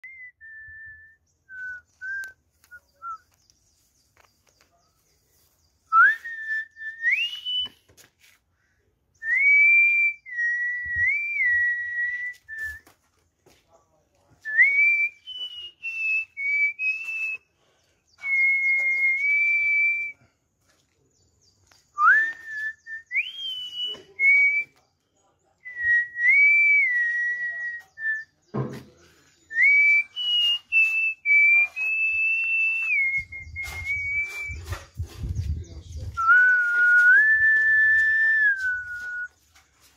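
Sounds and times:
person whistling a tune: 0.0 - 3.3, 5.9 - 7.9, 9.2 - 12.9, 14.5 - 17.4, 18.2 - 20.2, 22.0 - 24.8, 25.7 - 28.3, 29.5 - 35.2, 36.2 - 39.4.

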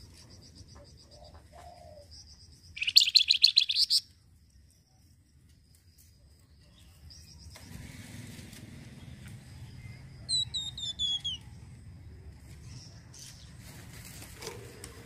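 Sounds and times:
songbird whistling: 2.8 - 4.1, 10.2 - 11.5.

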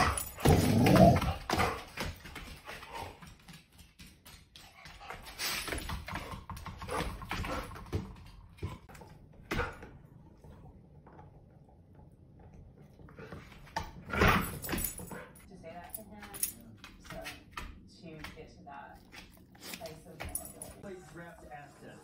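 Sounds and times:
dog claws clicking on floor: 13.7 - 20.8.

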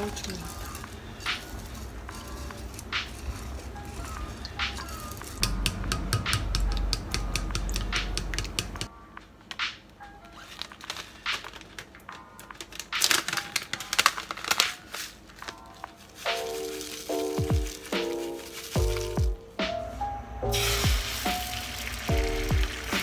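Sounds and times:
pouch crinkling: 0.0 - 5.4, 10.3 - 19.4
soft background music: 0.0 - 23.0
chopsticks clicking against pot: 2.6 - 8.9.

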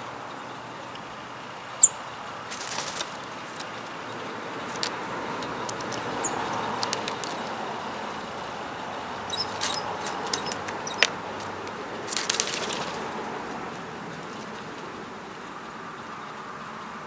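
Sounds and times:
bird pecking on wooden feeder: 9.3 - 13.1.

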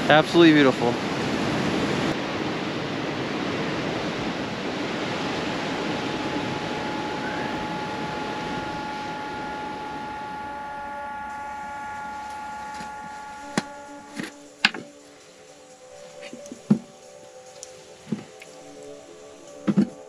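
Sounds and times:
surf breaking on rocks: 0.0 - 13.0
steady held tones: 4.1 - 18.4.

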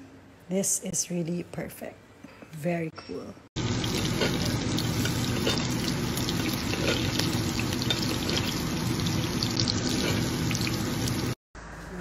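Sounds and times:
steak sizzling in a skillet: 3.6 - 11.4.

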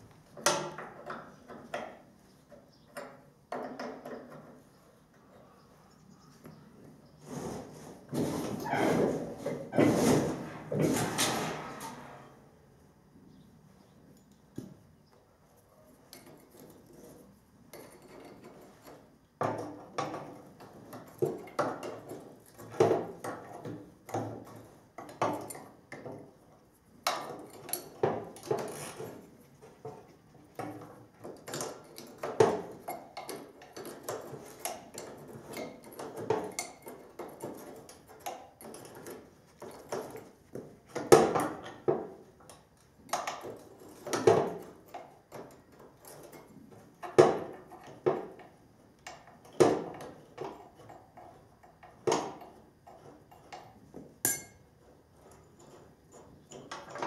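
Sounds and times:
tools clanking on steel: 50.4 - 54.6.

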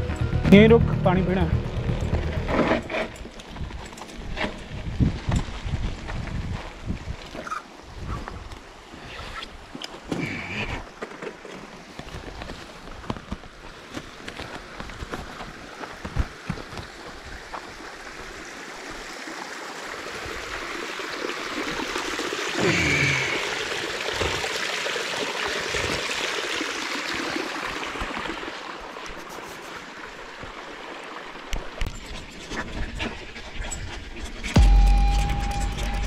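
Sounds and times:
water trickling down rock: 14.4 - 32.2.

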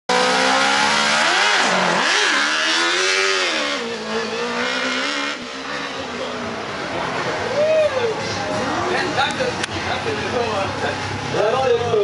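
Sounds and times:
race car engine revving: 0.1 - 7.5.

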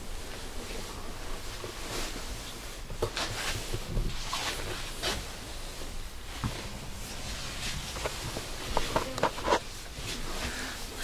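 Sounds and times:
clothing and bags rustling: 0.0 - 11.0
low steady rumble: 3.6 - 11.0.

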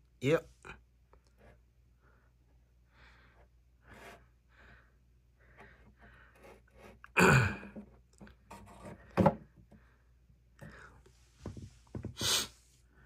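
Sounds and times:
person breathing in soft puffs: 1.4 - 7.0, 9.7 - 13.0
person sighing loudly: 7.2 - 7.8.

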